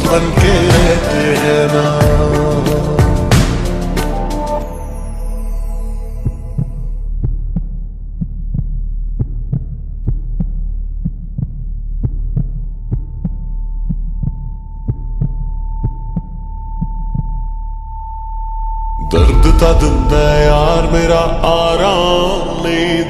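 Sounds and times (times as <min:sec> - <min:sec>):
deep bass drone: 0:00.0 - 0:04.5, 0:19.0 - 0:23.0
percussive beat: 0:00.0 - 0:04.6, 0:19.1 - 0:23.0
steady high tone: 0:17.8 - 0:23.0.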